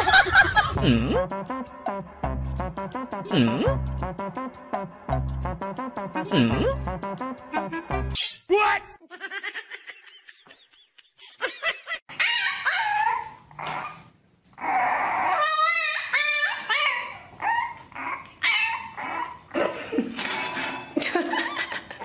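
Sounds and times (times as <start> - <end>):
dogs whining and yipping: 12.1 - 19.6
puppy whining and yipping: 12.1 - 19.6.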